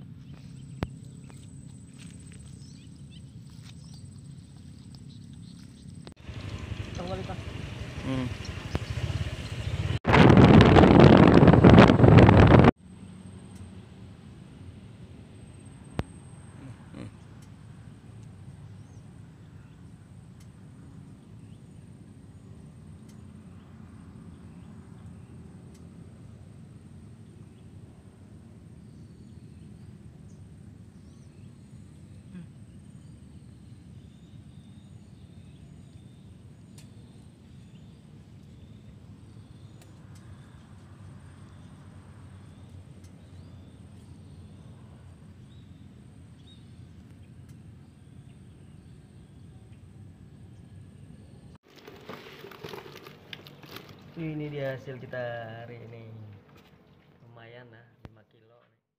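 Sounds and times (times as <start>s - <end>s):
low steady rumble: 0.0s - 58.0s
high steady whine: 6.1s - 12.8s
low rumble: 6.2s - 12.8s
bird chirps: 8.0s - 10.0s.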